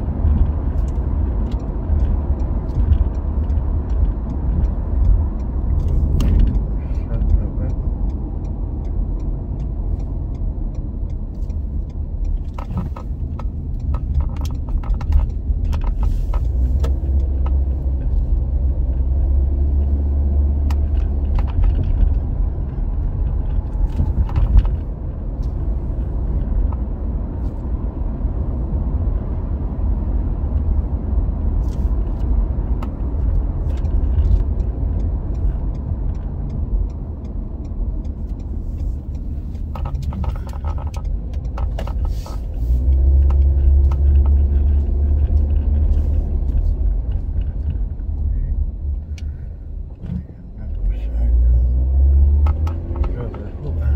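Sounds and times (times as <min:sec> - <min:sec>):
car road and engine rumble: 0:00.0 - 0:53.9
light clicks and rattles: 0:31.5 - 0:51.2.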